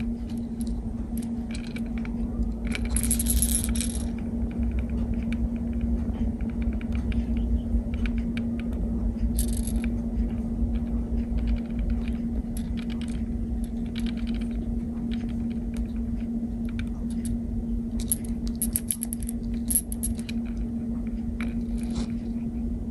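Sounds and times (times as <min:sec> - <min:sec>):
steady low hum: 0:00.0 - 0:22.9
fishing lure rattling: 0:02.6 - 0:04.2, 0:21.4 - 0:22.1.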